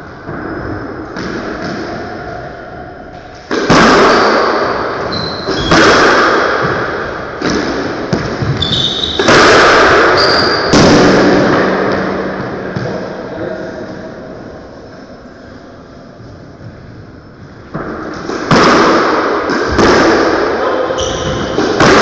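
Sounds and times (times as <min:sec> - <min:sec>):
squash ball striking walls: 0:00.2 - 0:02.1, 0:03.5 - 0:13.2, 0:17.7 - 0:22.0
shoes squeaking on wooden floor: 0:05.1 - 0:05.8, 0:08.4 - 0:09.2, 0:10.2 - 0:10.8.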